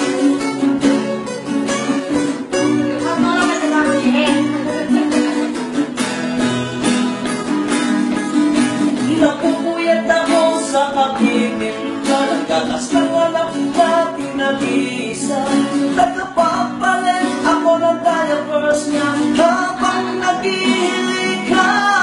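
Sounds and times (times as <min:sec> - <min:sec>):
acoustic guitars strummed and picked: 0:00.0 - 0:22.0
man singing: 0:02.5 - 0:05.7, 0:08.8 - 0:22.0.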